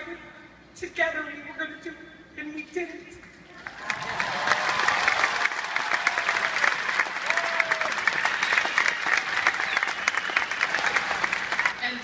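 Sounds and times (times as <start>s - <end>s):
audience applauding: 3.6s - 11.8s.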